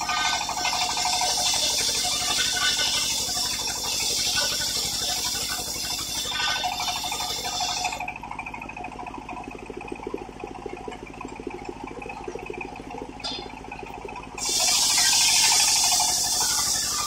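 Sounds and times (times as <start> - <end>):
saw machine running free: 0.0 - 8.0, 14.4 - 17.0.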